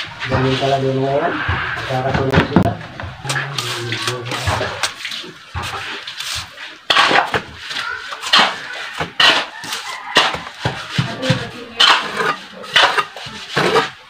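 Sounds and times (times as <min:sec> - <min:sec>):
trowel scraping wet mortar: 0:03.2 - 0:14.0
wet mortar slaps: 0:03.3 - 0:13.0.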